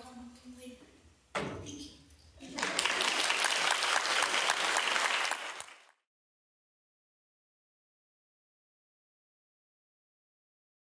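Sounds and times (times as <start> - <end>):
audience applauding: 2.4 - 6.0.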